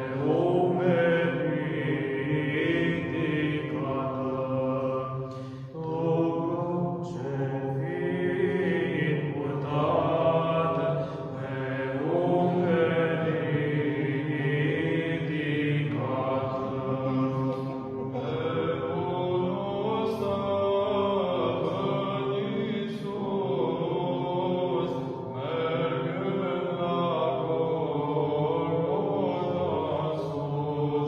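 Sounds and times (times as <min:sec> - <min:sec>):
male choir chanting unaccompanied: 0:00.0 - 0:31.0.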